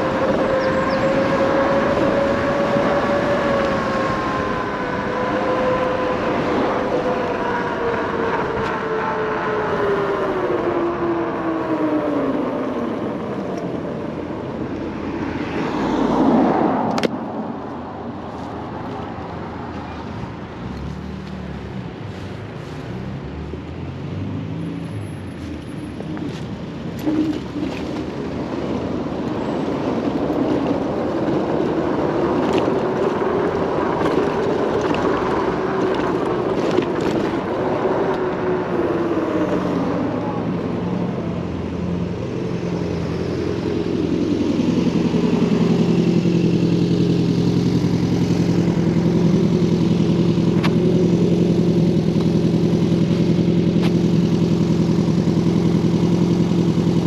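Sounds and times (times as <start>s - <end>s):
electric scooter motor whining: 0.0s - 14.0s
wind and road noise: 0.0s - 57.0s.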